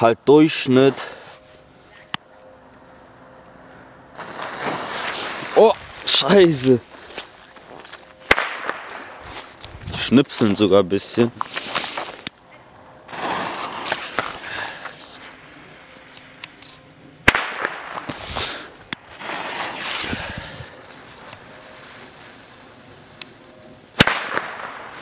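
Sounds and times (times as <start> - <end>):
footsteps on gravel: 4.3 - 8.2, 8.8 - 12.3
firecracker bangs: 8.3 - 9.0, 13.1 - 14.4, 17.2 - 20.0, 24.0 - 25.0.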